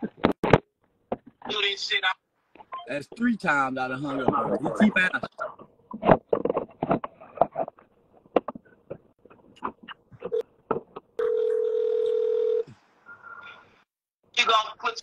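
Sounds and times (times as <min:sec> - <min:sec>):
muffled scraps of sound: 0:05.5 - 0:11.2
electronic phone tone: 0:11.2 - 0:12.7.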